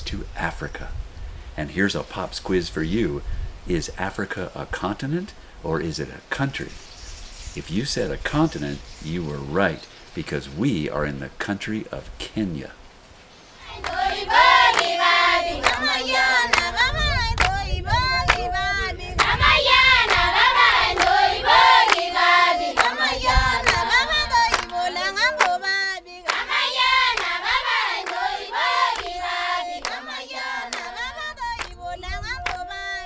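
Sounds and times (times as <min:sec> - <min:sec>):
choir singing: 0:13.6 - 0:33.0
hand claps: 0:13.8 - 0:14.0, 0:14.7 - 0:15.0, 0:15.6 - 0:16.8, 0:17.4 - 0:17.6, 0:18.3 - 0:18.5, 0:21.8 - 0:22.1, 0:22.8 - 0:23.0, 0:24.5 - 0:25.6, 0:26.3 - 0:26.5, 0:27.1 - 0:27.4, 0:28.0 - 0:28.2, 0:28.9 - 0:29.2, 0:29.8 - 0:30.1, 0:30.7 - 0:31.0, 0:31.6 - 0:31.8, 0:32.4 - 0:32.7.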